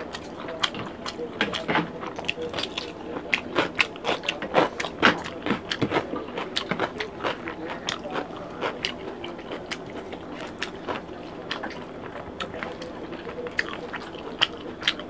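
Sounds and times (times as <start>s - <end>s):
chewing and lip smacking: 0.0s - 15.0s.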